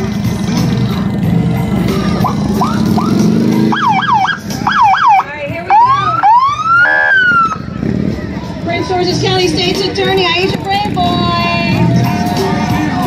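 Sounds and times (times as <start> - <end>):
motorcycle police siren: 2.1 - 7.7.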